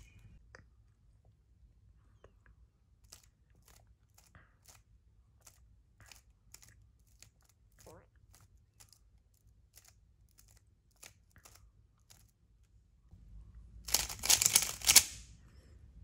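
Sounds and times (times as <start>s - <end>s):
puzzle cube clicking as turned: 13.9s - 15.2s.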